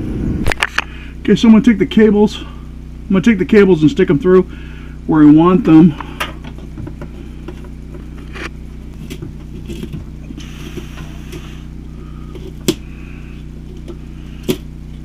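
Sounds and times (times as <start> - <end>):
steady low hum: 0.0 - 15.0
cables scraping and rustling: 6.4 - 15.0.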